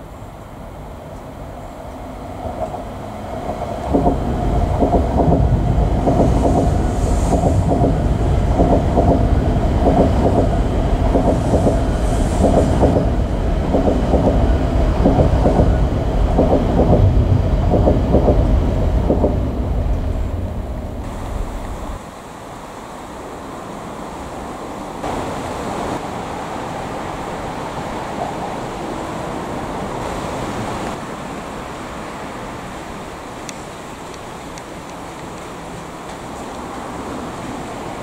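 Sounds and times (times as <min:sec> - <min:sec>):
train wheels clacking over rails: 0:02.4 - 0:19.9.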